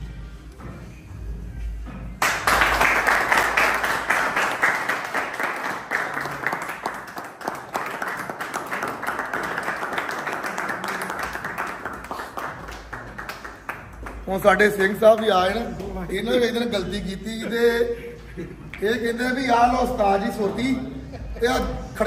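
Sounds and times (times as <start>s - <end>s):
people clapping: 2.2s - 16.3s.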